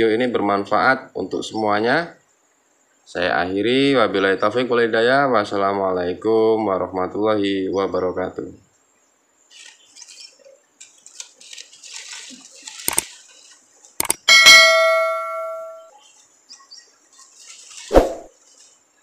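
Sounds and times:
mouse clicks: 12.9 - 13.1, 14.0 - 14.2
bell ding: 14.3 - 15.9
faint bird chirps: 15.6 - 17.9.

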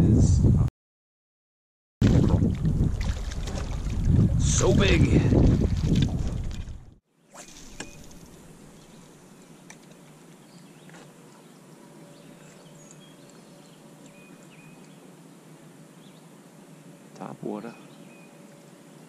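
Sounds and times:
distant bird chirps: 7.2 - 19.0.

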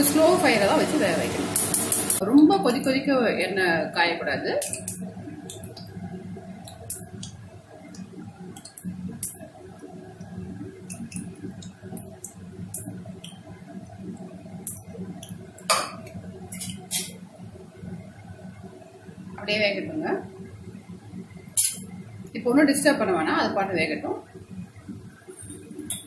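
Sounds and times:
dough frying in oil: 0.0 - 26.0
small pops and clicks: 6.6 - 9.4.

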